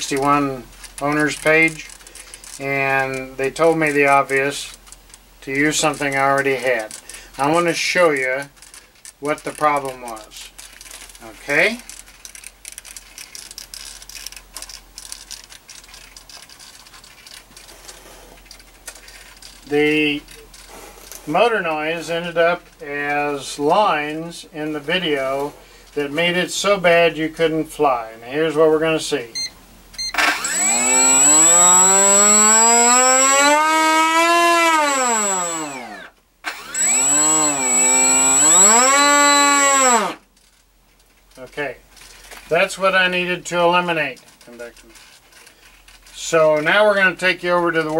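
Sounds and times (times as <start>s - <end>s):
handling clicks and rustling: 0.0s - 21.4s, 40.1s - 42.7s, 43.9s - 46.9s
electric motor whine: 30.1s - 40.2s.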